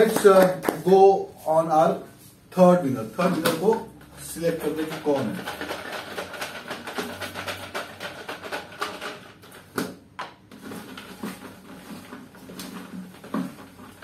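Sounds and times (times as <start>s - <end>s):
paper rattling in plastic jar: 4.2s - 9.8s, 10.5s - 14.0s.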